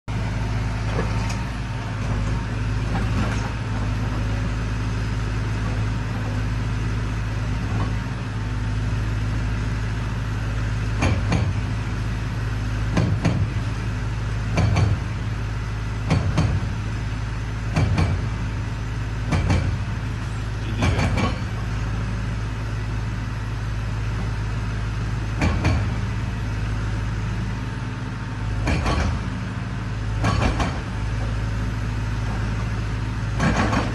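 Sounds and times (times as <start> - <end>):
excavator diesel engine running: 0.1 - 33.9
heavy knocks and clanks: 11.0 - 11.6, 12.9 - 13.6, 14.5 - 15.1, 16.0 - 16.7, 17.7 - 18.4, 19.2 - 19.9, 20.7 - 21.6, 25.4 - 26.0, 28.6 - 29.3, 30.2 - 31.4, 33.4 - 33.9.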